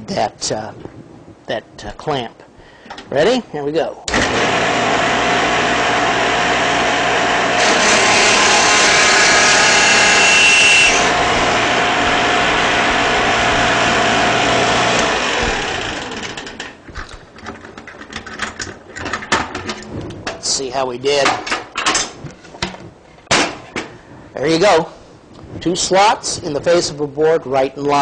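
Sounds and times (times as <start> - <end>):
biscuit joiner humming: 4.1 - 16.6
blade cutting slot in wood: 7.5 - 11.1.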